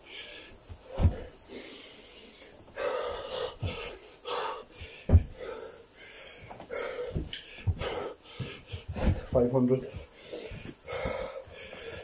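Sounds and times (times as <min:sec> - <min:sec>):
man breathing hard: 0:00.0 - 0:12.0
thumps on carpeted floor: 0:00.7 - 0:01.3, 0:04.8 - 0:05.4, 0:06.5 - 0:11.3.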